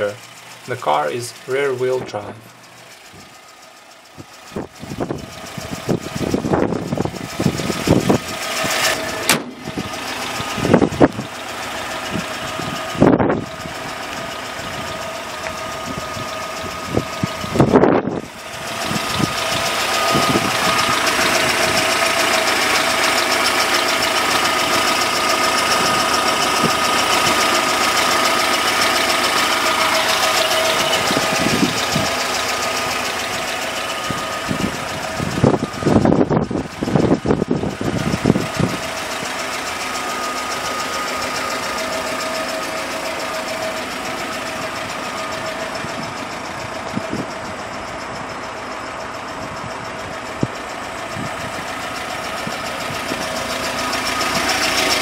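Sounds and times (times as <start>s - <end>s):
engine idling: 0.0s - 55.0s.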